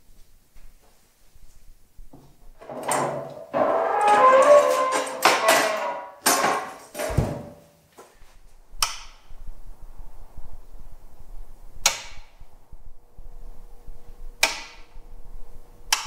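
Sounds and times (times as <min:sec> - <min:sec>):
kiln humming: 0:02.1 - 0:06.9, 0:09.4 - 0:16.0
sharp clicks: 0:08.8 - 0:09.3, 0:11.8 - 0:12.3.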